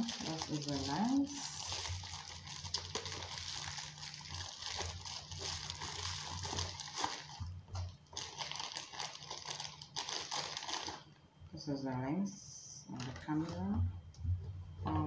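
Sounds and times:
plastic bag rustling: 0.0s - 11.1s
bubble wrap crinkling: 0.0s - 11.2s.

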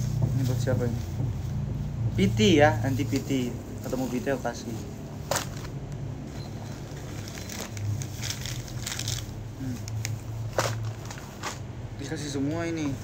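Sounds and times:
steady low hum: 0.0s - 13.0s
cellophane crinkling and crackling: 2.9s - 6.0s, 6.6s - 11.7s.

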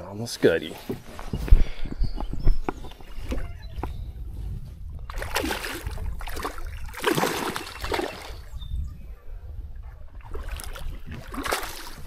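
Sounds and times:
fish splashing at water surface: 5.1s - 8.4s, 10.2s - 12.0s.

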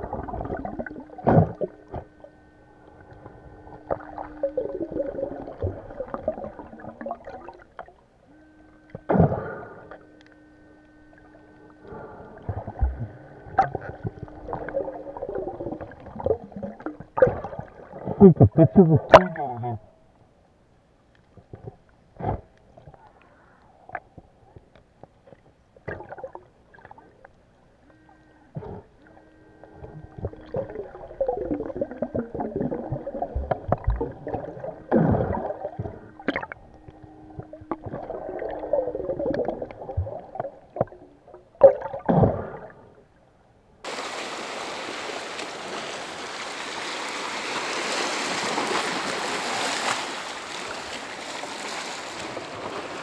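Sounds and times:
underwater bubbling and gurgling: 0.0s - 20.2s, 21.1s - 53.0s
sea waves against rocks: 43.9s - 53.0s.

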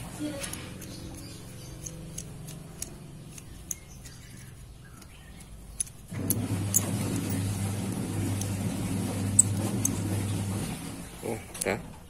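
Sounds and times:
metallic clicks of hand tool: 0.4s - 7.3s.

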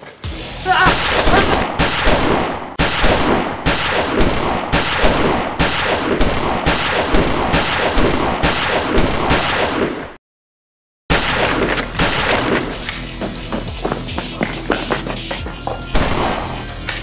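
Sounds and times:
gunfire volley: 0.9s - 10.0s, 15.9s - 16.6s.

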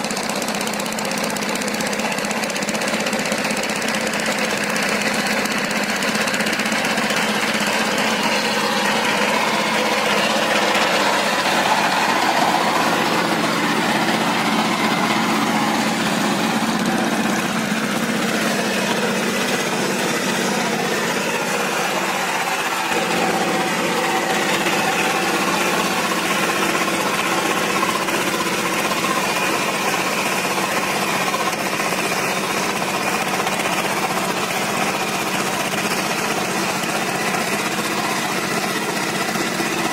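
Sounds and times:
diesel engine chugging: 0.0s - 39.9s.

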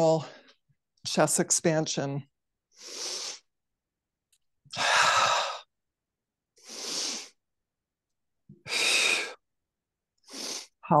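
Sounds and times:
woman breathing: 4.7s - 5.8s, 6.6s - 7.4s, 8.5s - 9.5s, 10.2s - 10.8s.

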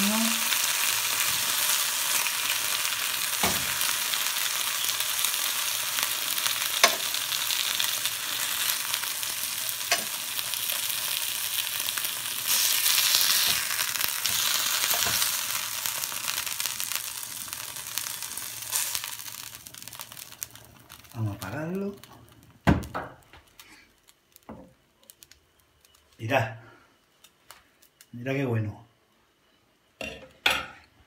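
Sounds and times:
meat sizzling in a frying pan: 0.0s - 26.0s.

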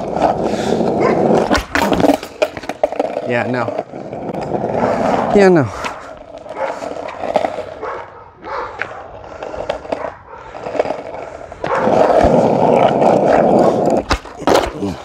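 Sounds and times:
skateboard wheels rolling on asphalt: 0.0s - 15.0s
dogs barking: 0.9s - 1.4s, 4.6s - 5.3s, 5.9s - 9.2s, 9.8s - 10.7s, 11.6s - 12.2s.

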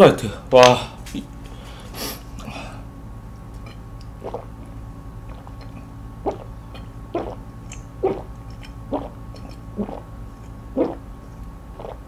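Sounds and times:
person gulping a drink: 4.2s - 4.7s, 5.3s - 11.1s, 11.7s - 12.0s.

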